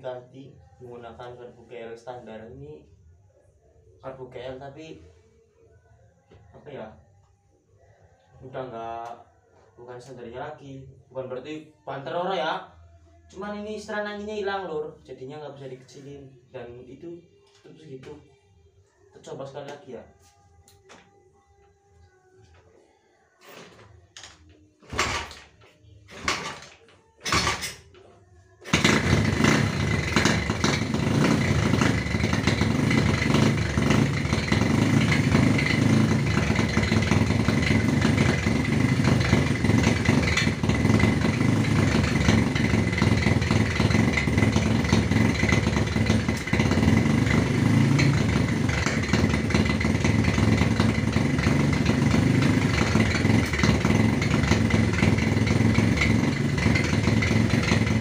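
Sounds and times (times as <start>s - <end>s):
motorcycle kick-start kicks: 23.4s - 28.0s, 28.6s - 58.0s
motorcycle engine running: 26.1s - 27.9s, 28.6s - 58.0s.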